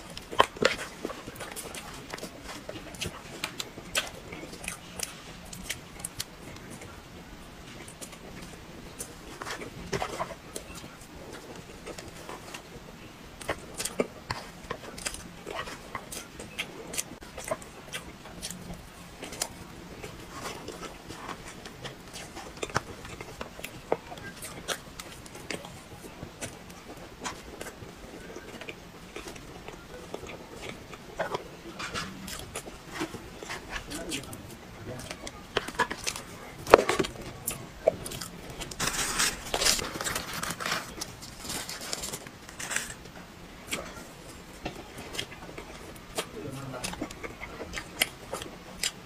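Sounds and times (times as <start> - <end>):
chewing cake: 0.0 - 49.0
spoon scooping from paper box: 38.7 - 42.9.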